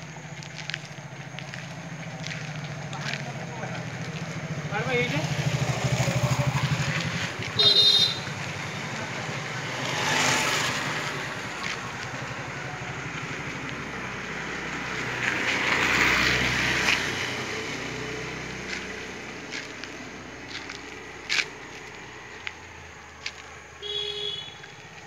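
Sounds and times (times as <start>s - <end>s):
low engine hum: 0.0s - 25.0s
vehicles passing: 0.0s - 25.0s.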